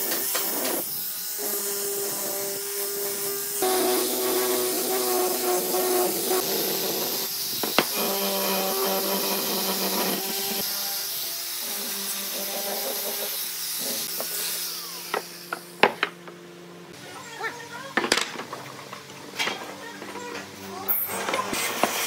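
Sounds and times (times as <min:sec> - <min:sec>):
power tool running against wood: 0:00.0 - 0:16.2.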